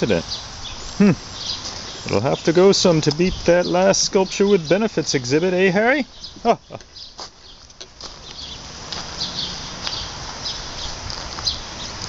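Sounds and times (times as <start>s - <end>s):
steady hiss: 0.0s - 12.0s
footsteps on gravel and grass: 1.4s - 12.0s.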